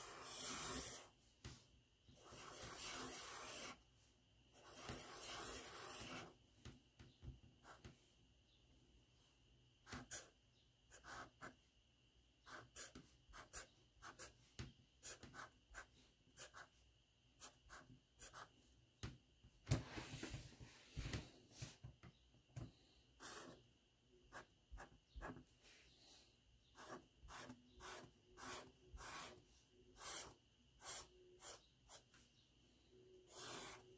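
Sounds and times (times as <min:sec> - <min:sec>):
marker scratching across paper: 0:00.0 - 0:01.1, 0:02.1 - 0:03.8, 0:04.6 - 0:06.4, 0:09.9 - 0:10.3, 0:10.9 - 0:11.6, 0:12.5 - 0:14.4, 0:17.4 - 0:18.5, 0:23.2 - 0:23.6, 0:26.7 - 0:32.1, 0:33.3 - 0:33.9.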